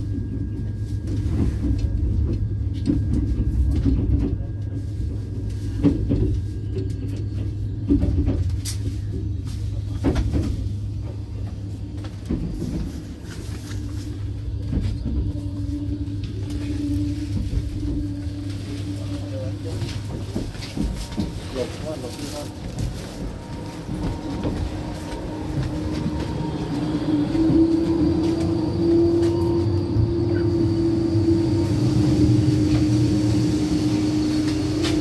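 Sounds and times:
train wheels rumbling on rails: 0.0s - 35.0s
knocks and rattles over track: 1.1s - 13.4s, 17.2s - 30.6s.

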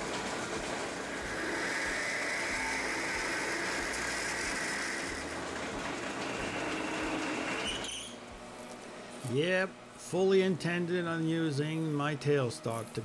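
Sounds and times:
lathe drilling into steel: 0.0s - 8.0s.

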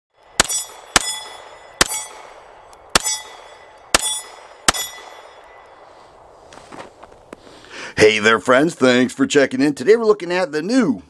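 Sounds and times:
pistol shots: 0.3s - 5.8s.

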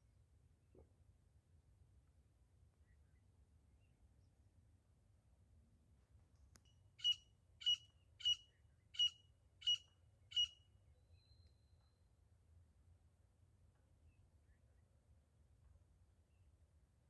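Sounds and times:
francolin calling: 7.0s - 10.6s.

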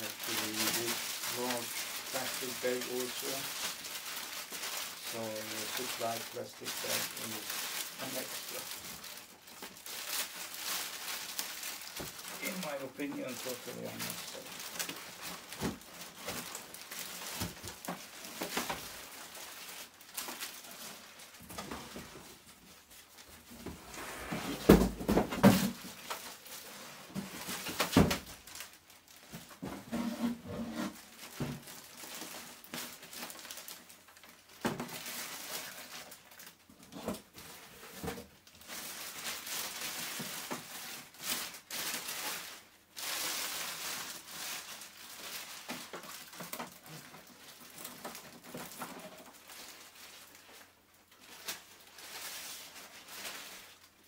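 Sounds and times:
plastic bag rustling: 0.0s - 54.0s
box knocks and thumps: 24.5s - 25.8s.

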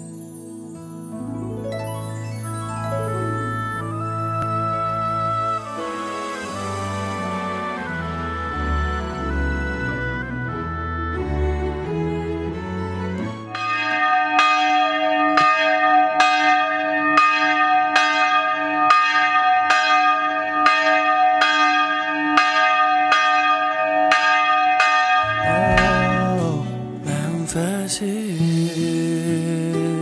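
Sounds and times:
church bell tolling: 13.5s - 27.6s.

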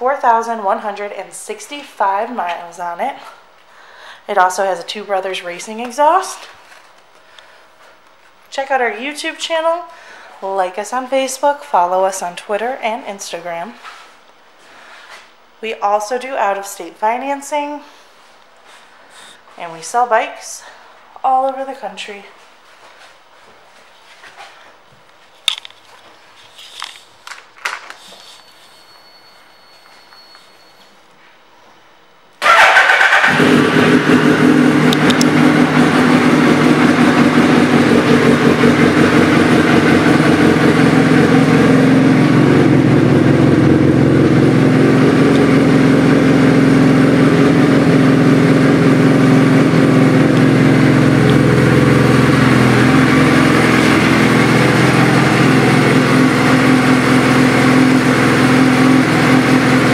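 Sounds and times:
motorcycle engine starting and idling: 32.4s - 59.9s.

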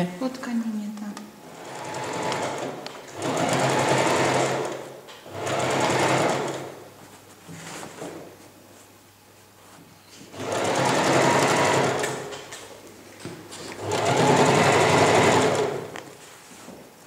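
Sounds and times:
sewing machine stitching: 1.4s - 6.8s, 10.3s - 12.5s, 13.8s - 16.0s.

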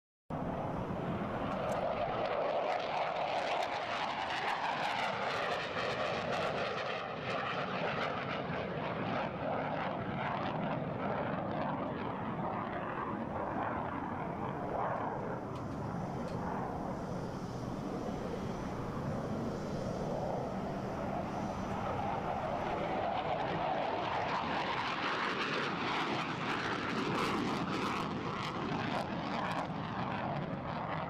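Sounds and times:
jet engine roar: 0.3s - 31.0s.

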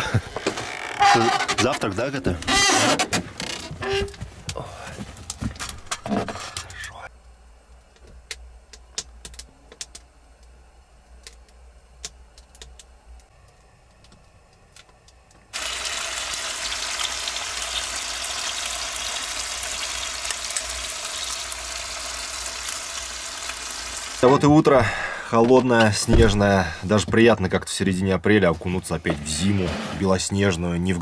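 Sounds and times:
eggs and sausages sizzling in a pan: 15.5s - 24.3s.

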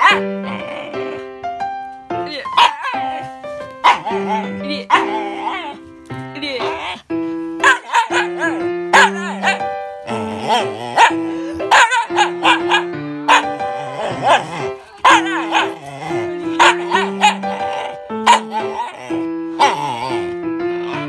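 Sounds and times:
dog barking: 0.0s - 0.3s, 2.6s - 5.2s, 7.6s - 9.7s, 11.0s - 15.8s, 16.5s - 19.0s
background music with held notes: 0.0s - 21.0s.

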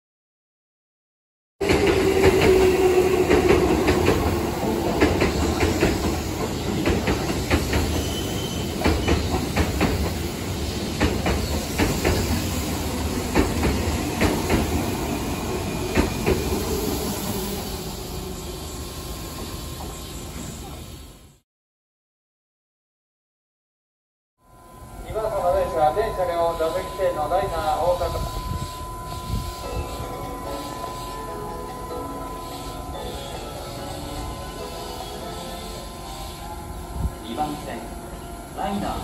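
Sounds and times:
train wheels clattering over joints: 1.6s - 15.0s, 15.7s - 16.8s
train rumble: 1.6s - 21.2s
wheel squeals: 5.2s - 9.6s.

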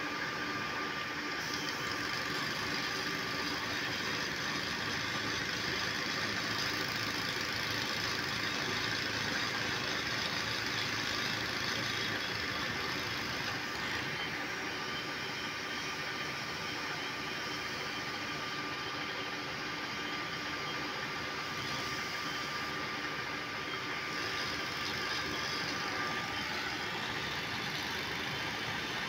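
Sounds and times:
faint steady whine: 0.0s - 29.0s
heavy machinery engine droning: 21.0s - 29.0s.

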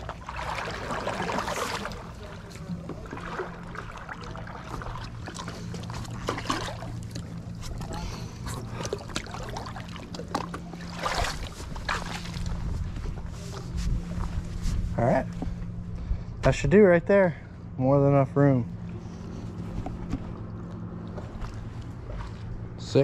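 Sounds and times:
paddle splashing in shallow water: 0.0s - 14.3s, 21.1s - 22.6s
steady low hum: 0.0s - 23.0s.

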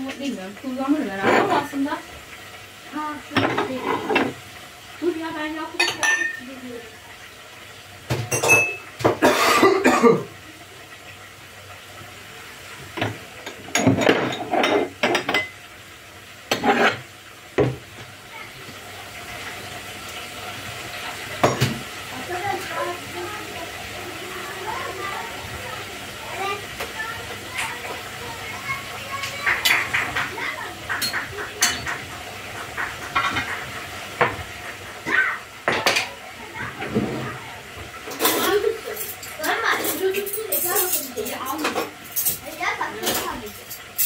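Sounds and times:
frying sizzle: 0.0s - 44.0s
dishes and cutlery clattering: 1.2s - 1.7s, 3.3s - 4.4s, 5.8s - 6.5s, 8.1s - 9.8s, 13.0s - 15.6s, 16.5s - 17.8s, 21.4s - 21.8s, 29.2s - 34.4s, 38.1s - 44.0s
metal utensil clinking on cookware: 5.8s - 6.5s, 8.3s - 8.9s, 13.4s - 15.6s, 30.9s - 32.0s, 38.1s - 44.0s.

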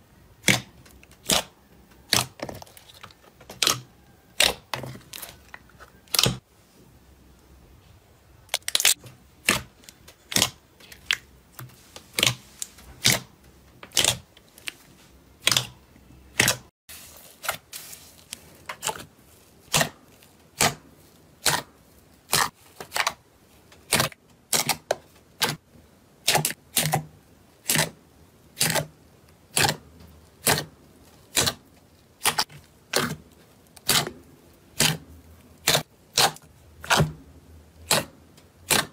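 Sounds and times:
slime clicking and popping: 0.4s - 2.4s, 3.5s - 5.4s.

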